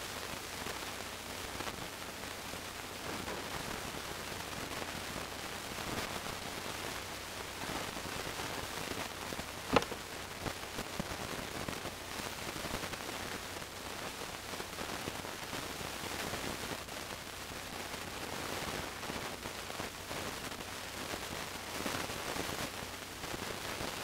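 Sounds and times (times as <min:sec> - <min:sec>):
crackly hiss: 0:00.0 - 0:24.0.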